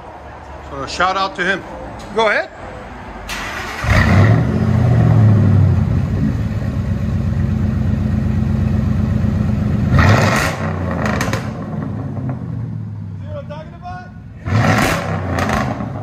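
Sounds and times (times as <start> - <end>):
truck engine starting and idling: 3.2 - 16.0
engine revving: 3.4 - 6.5, 9.7 - 12.6, 14.3 - 16.0.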